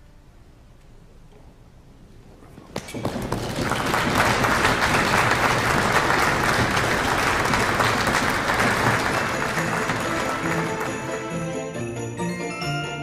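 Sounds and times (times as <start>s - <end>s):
audience applauding: 2.6s - 11.8s
music: 5.9s - 13.0s.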